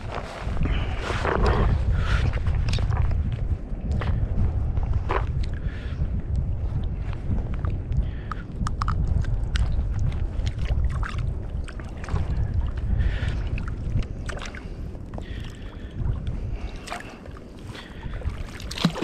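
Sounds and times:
wind rumble on microphone: 0:00.0 - 0:19.0
light clicks and small splashes: 0:07.0 - 0:19.0
water lapping: 0:07.7 - 0:19.0.

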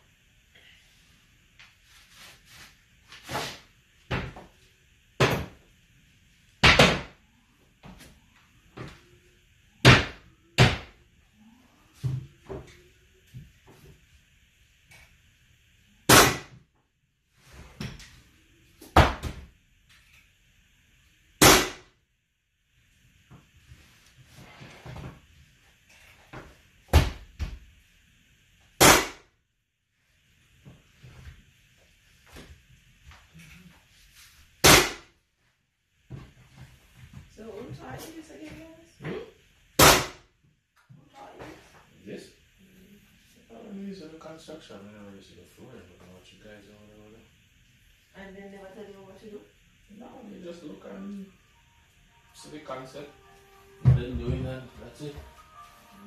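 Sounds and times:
nail gun bangs: 0:21.4 - 0:21.8.

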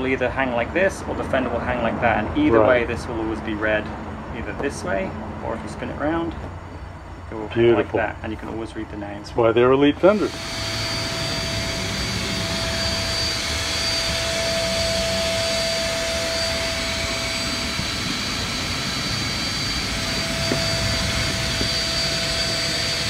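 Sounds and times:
electric air pump whining: 0:09.7 - 0:23.0.

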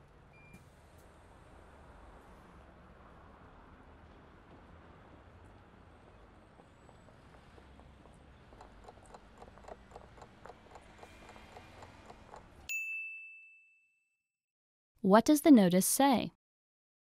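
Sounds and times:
clock ticking: 0:08.5 - 0:12.7.

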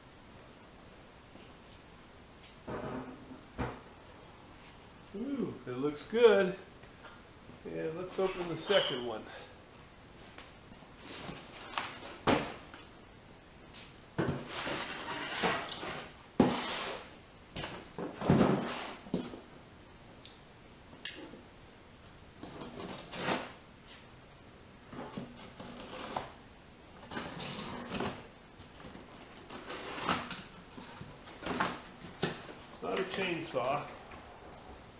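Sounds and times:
cardboard rustling and scraping: 0:13.8 - 0:19.4, 0:24.9 - 0:26.4, 0:27.0 - 0:33.8.

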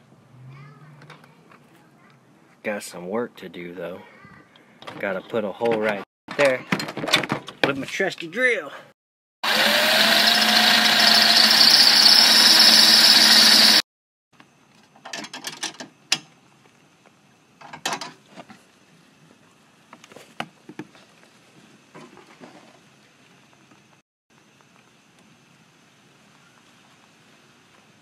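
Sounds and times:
cordless drill drilling: 0:09.4 - 0:13.8.

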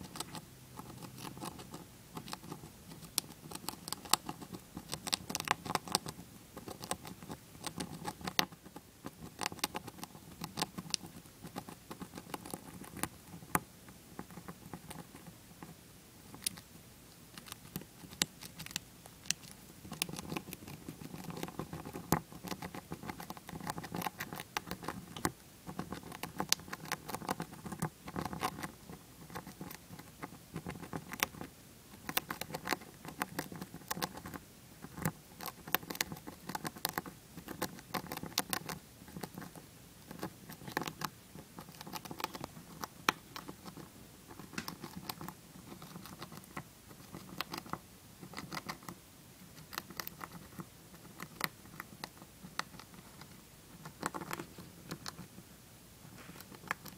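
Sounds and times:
hamster gnawing a peanut: 0:00.0 - 0:56.9.

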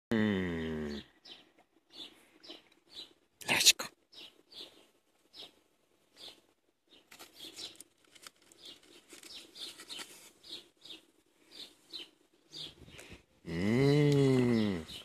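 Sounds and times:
aluminium foil crinkling: 0:07.0 - 0:10.6.

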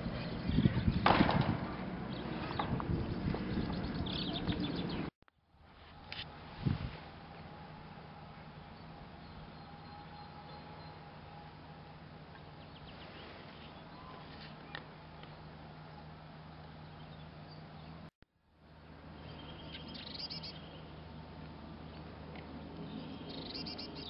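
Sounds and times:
birds chirping: 0:00.0 - 0:01.2, 0:02.0 - 0:05.1, 0:19.1 - 0:21.1, 0:22.8 - 0:24.0.

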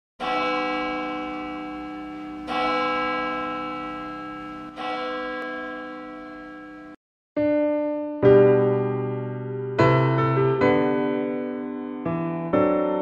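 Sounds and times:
large bell tolling: 0:00.2 - 0:07.0.

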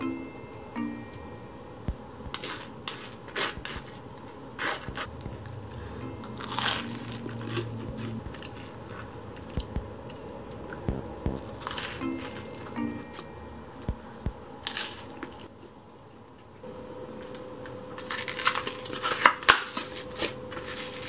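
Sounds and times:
toast crunching: 0:04.6 - 0:09.7.

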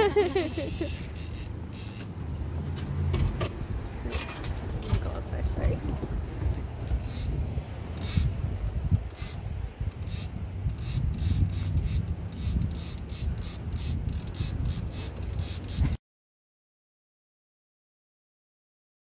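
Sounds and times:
fishing reel ratcheting: 0:00.4 - 0:02.1, 0:06.9 - 0:08.3, 0:09.0 - 0:16.0.

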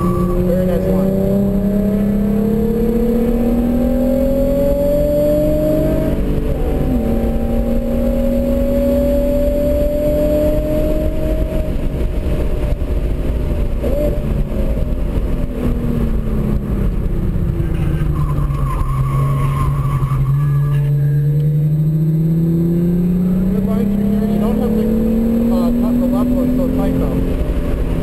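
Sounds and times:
car engine at high revs: 0:00.0 - 0:28.0
tyre squeal: 0:17.8 - 0:21.2.

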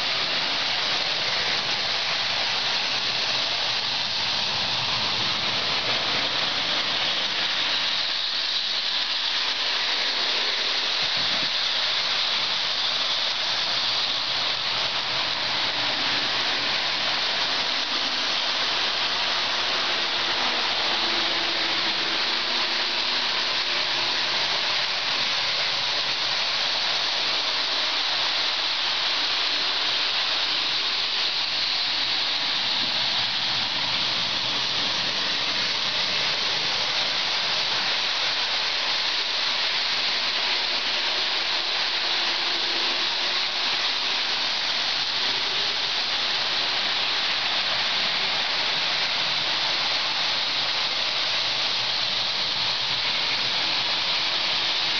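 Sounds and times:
model trains whirring: 0:00.0 - 0:54.9.

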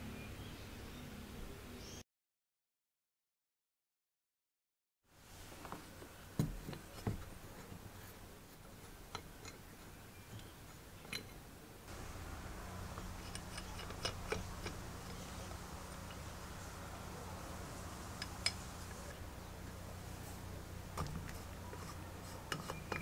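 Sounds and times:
hand drill metal clicks: 0:12.9 - 0:16.4, 0:18.1 - 0:19.0.

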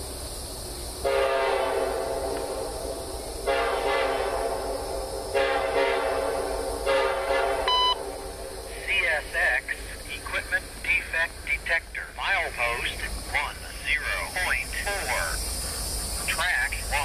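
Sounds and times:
distant locomotive air horn blasts: 0:01.0 - 0:08.7
steady low rumble: 0:06.2 - 0:17.0.

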